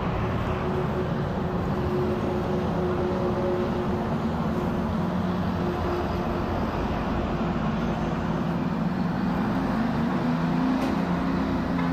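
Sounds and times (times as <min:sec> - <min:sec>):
airliner jet engines rumbling: 0:00.0 - 0:11.9.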